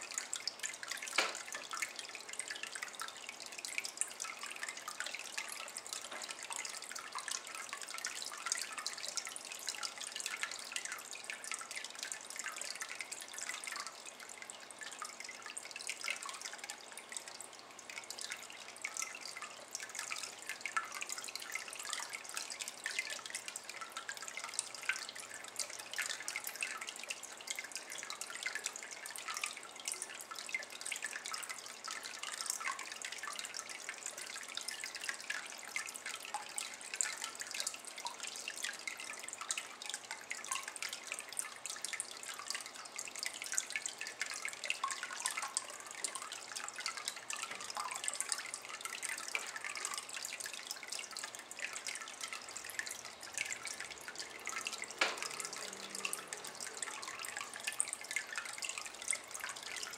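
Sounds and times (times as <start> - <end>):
water trickling into basin: 0.0 - 59.9.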